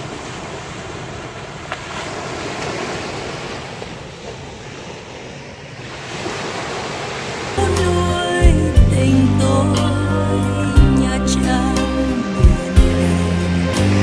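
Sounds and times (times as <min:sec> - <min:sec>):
small waves washing onto shore: 0:00.0 - 0:07.6.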